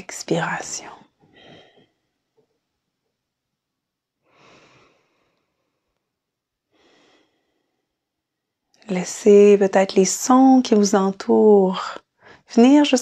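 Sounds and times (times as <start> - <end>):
woman breathing slowly: 1.2 - 2.2, 4.2 - 8.2, 12.2 - 12.5.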